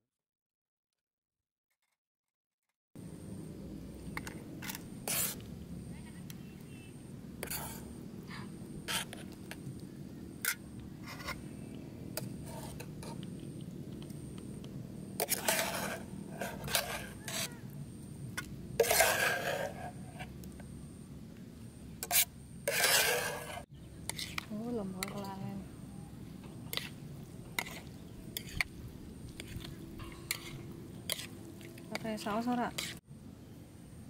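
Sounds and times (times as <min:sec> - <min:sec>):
fork scraping and clinking on plate: 0:07.4 - 0:07.9, 0:15.2 - 0:17.6, 0:18.8 - 0:19.9, 0:22.0 - 0:25.3, 0:27.6 - 0:28.7, 0:29.4 - 0:31.4.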